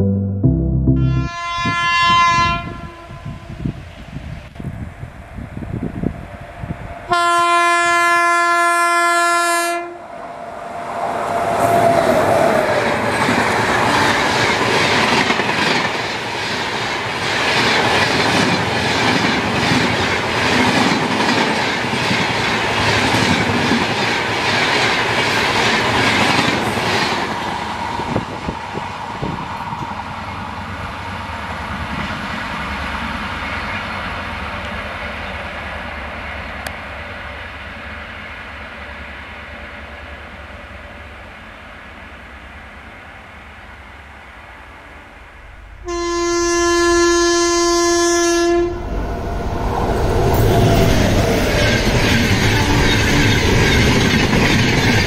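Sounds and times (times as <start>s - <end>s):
passenger train passing at speed: 1.0s - 55.0s
wheels clacking over rail joints: 50.2s - 55.0s.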